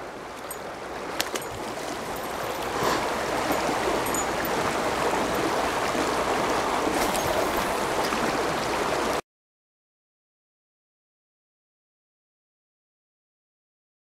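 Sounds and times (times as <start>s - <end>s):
creek water rushing over rocks: 0.0s - 9.2s.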